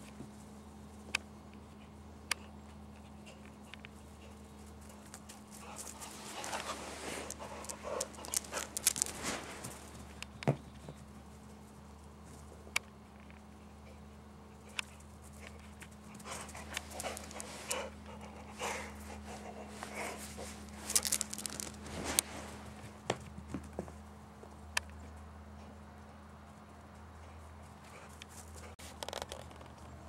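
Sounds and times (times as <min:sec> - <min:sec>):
dog panting: 0:02.9 - 0:09.2, 0:13.8 - 0:20.6
dog feet scuffing and clicking: 0:04.9 - 0:11.0, 0:15.6 - 0:17.8, 0:19.8 - 0:25.0.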